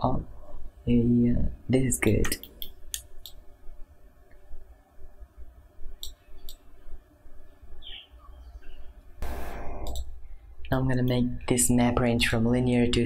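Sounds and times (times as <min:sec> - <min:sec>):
steady low hum: 0:00.0 - 0:13.0
computer mouse clicks: 0:09.8 - 0:10.1.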